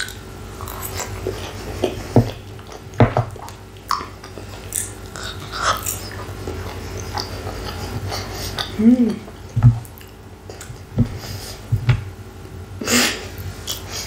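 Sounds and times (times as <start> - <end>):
chewing fries: 0.0 - 11.0.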